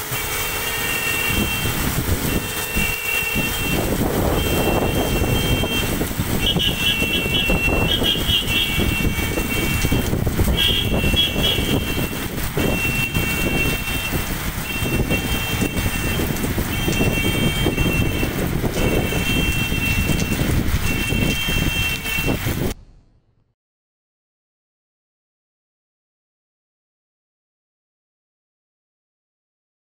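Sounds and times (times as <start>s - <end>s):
heavy rain on street: 0.0s - 22.8s.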